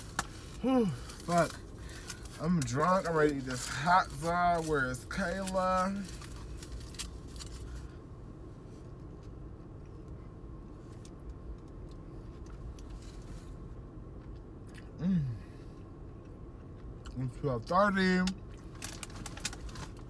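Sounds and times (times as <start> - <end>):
low cabin hum: 0.0 - 20.0
person murmuring: 15.0 - 15.4.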